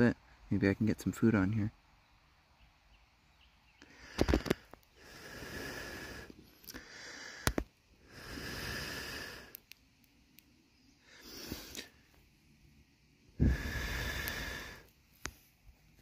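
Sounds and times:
person blowing on fire: 0:04.0 - 0:09.6, 0:11.0 - 0:12.0, 0:13.4 - 0:15.0.

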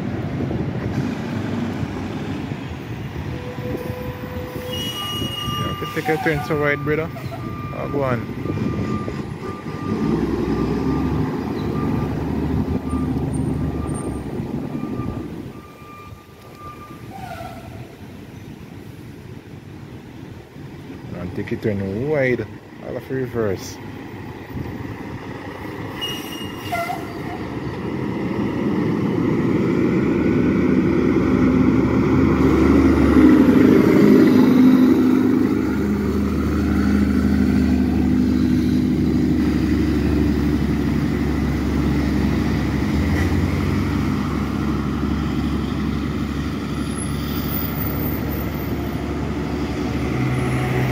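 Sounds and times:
diesel truck engine running: 0:06.7 - 0:16.7, 0:27.5 - 0:50.9.

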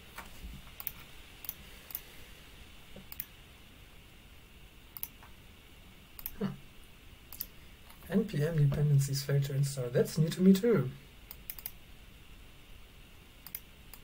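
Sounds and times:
faint room hiss: 0:00.0 - 0:14.0
computer clicks: 0:00.8 - 0:02.0, 0:03.0 - 0:03.3, 0:05.0 - 0:05.3, 0:06.2 - 0:06.4, 0:07.3 - 0:08.0, 0:11.3 - 0:11.8, 0:13.4 - 0:14.0.

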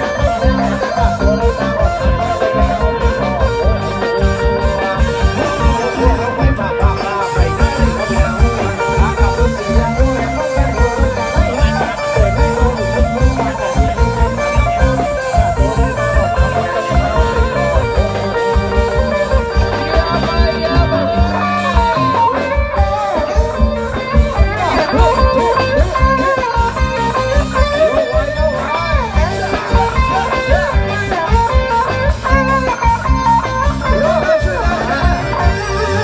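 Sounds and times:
drum beat: 0:00.0 - 0:36.0
electric guitar lead: 0:00.0 - 0:36.0
upbeat band music: 0:00.0 - 0:36.0.

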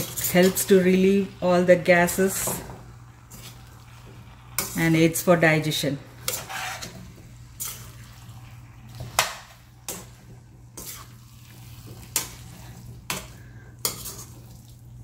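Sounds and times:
metal spatula scraping frying pan: 0:00.0 - 0:01.2, 0:03.3 - 0:05.2, 0:06.2 - 0:14.7.

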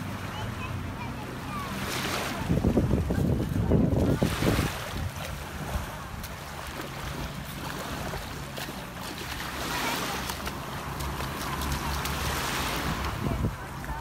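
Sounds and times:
lake waves lapping at shore: 0:00.0 - 0:14.0
wind buffeting microphone: 0:02.1 - 0:08.9, 0:09.8 - 0:14.0.

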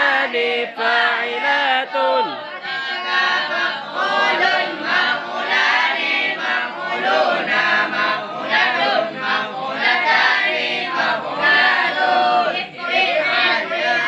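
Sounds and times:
boys chanting in unison: 0:00.0 - 0:14.0.

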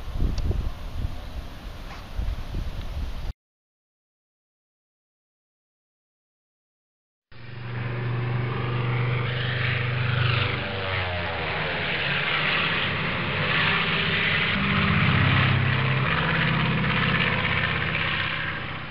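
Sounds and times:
model airplane engine: 0:07.3 - 0:18.9.

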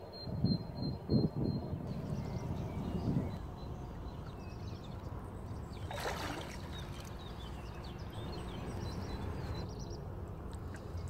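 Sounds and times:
birds chirping: 0:01.8 - 0:10.1
water sloshing and splashing: 0:05.6 - 0:08.2.

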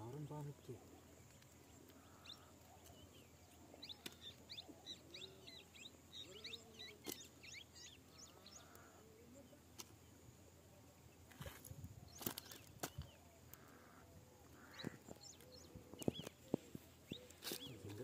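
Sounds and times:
bird chirping: 0:00.0 - 0:18.0.

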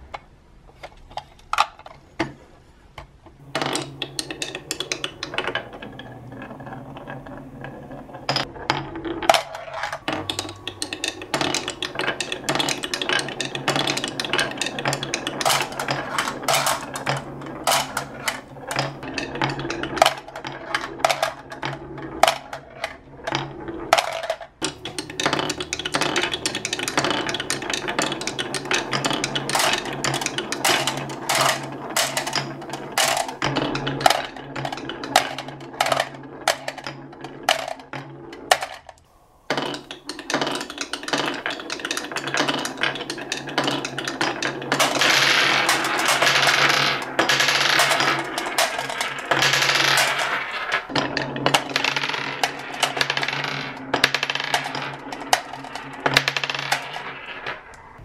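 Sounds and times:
marbles clicking against blocks: 0:03.4 - 0:58.0
marbles rolling on wooden run: 0:03.4 - 0:58.0.

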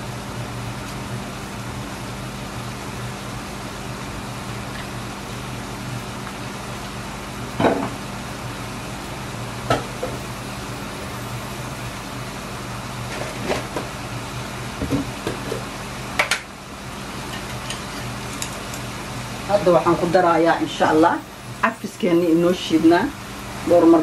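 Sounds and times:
low steady hum: 0:00.0 - 0:24.0
food sizzling in a pan: 0:15.8 - 0:20.4.

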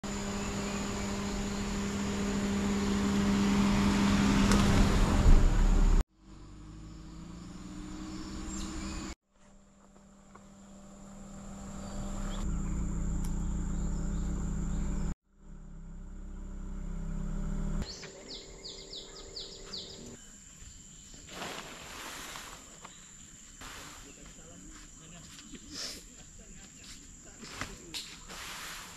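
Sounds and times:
high insect whine: 0:00.0 - 0:09.2, 0:10.3 - 0:15.8, 0:16.8 - 0:28.9
car driving: 0:00.1 - 0:20.2
quick insect chirps: 0:17.8 - 0:28.9.

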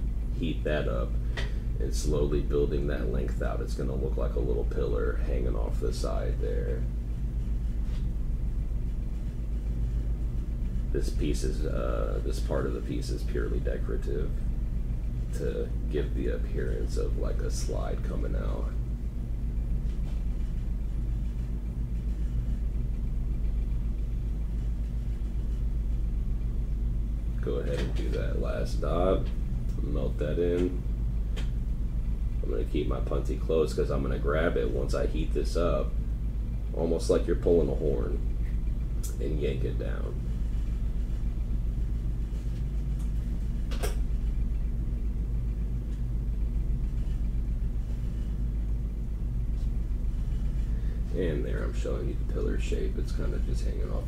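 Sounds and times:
torch flame rumbling: 0:00.0 - 0:54.0
sharp click: 0:43.7 - 0:44.0.

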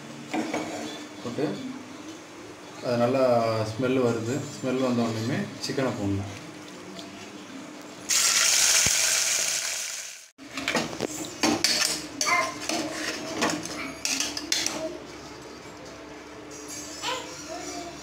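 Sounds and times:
chicken sizzling in hot oil: 0:08.1 - 0:10.4.

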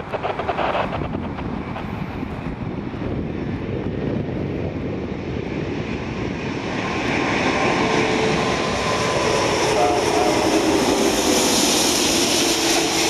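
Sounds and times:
jet engines rushing overhead: 0:00.0 - 0:13.0
high whine: 0:06.3 - 0:13.0.

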